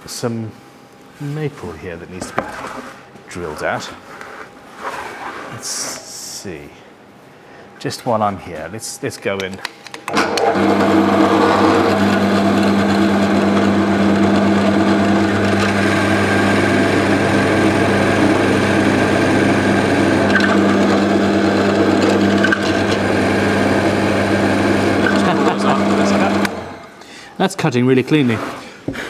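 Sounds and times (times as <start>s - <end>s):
drill motor humming: 10.2s - 27.0s
drill bit boring into wood: 10.3s - 26.8s.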